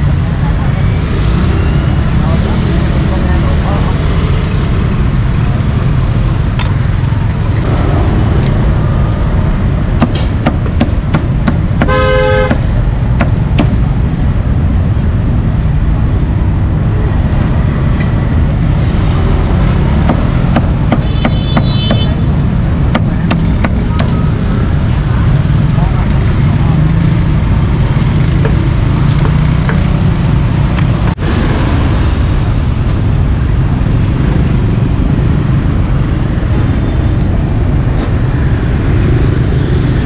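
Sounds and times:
street traffic rumble: 0:00.0 - 0:40.0
cleaver chopping on wooden block: 0:10.0 - 0:11.9
vehicle horn toot: 0:11.9 - 0:12.6.

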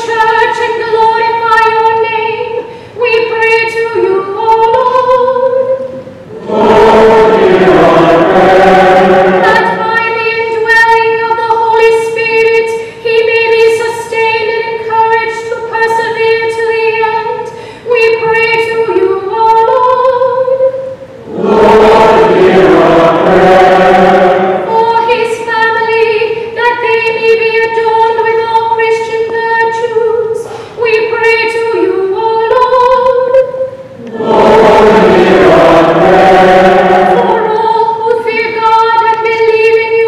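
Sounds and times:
woman chanting: 0:00.0 - 0:20.9, 0:21.9 - 0:40.0
congregation singing response: 0:05.8 - 0:11.0, 0:20.6 - 0:26.0, 0:32.8 - 0:39.2.

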